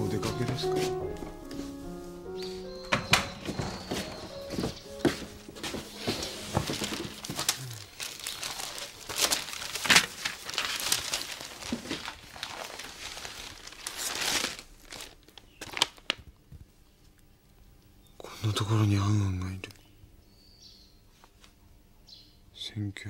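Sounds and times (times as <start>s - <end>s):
magazine pages rustling: 3.2s - 16.3s.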